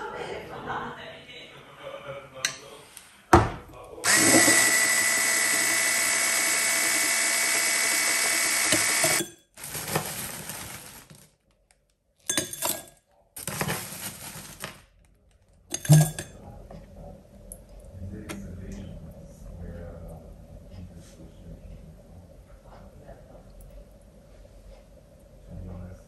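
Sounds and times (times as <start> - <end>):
blender motor running: 4.0 - 9.3
clattering: 15.7 - 16.3.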